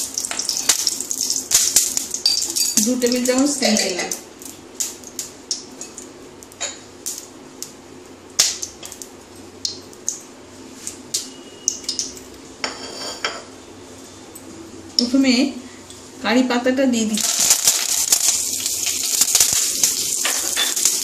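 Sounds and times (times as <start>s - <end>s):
hot oil crackling and popping: 0.0s - 12.4s, 17.1s - 21.0s.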